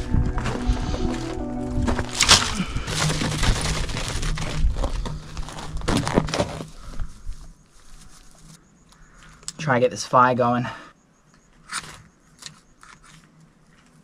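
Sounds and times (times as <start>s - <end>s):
dry grass tinder crackling: 0.0s - 8.5s
scrapes and knocks on gravel: 0.1s - 8.6s.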